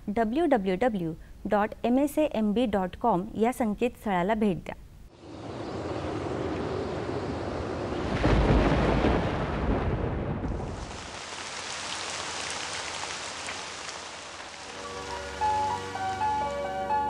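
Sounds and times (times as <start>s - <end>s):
thunder rolling: 5.2s - 16.3s
steady rain: 5.2s - 17.0s.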